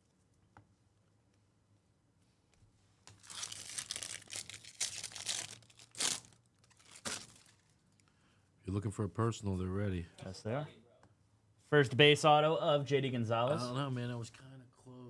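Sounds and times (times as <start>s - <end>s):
wrapper tearing and crinkling: 3.1s - 7.8s.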